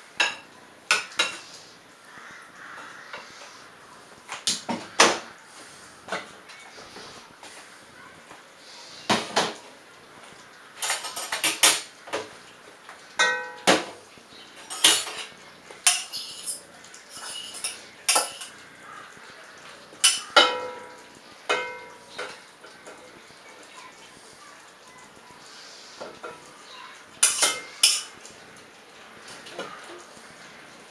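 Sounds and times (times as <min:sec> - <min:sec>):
metal utensil scraping a steel pot: 0:14.7 - 0:18.6.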